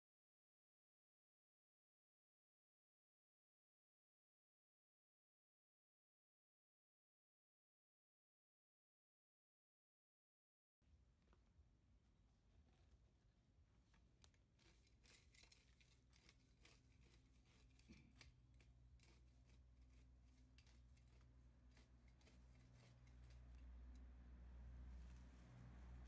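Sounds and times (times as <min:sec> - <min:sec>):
low steady hum: 0:10.9 - 0:26.0
dry leaves crackling underfoot: 0:14.6 - 0:26.0.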